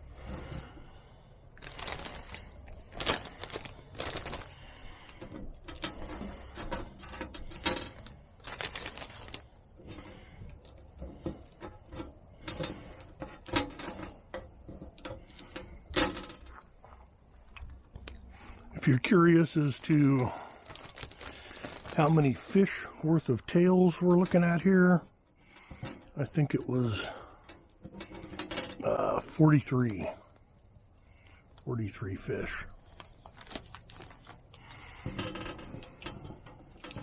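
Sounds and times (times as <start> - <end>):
plastic bag crinkling: 1.5 - 6.5, 7.4 - 11.6, 19.4 - 24.7, 29.6 - 37.0.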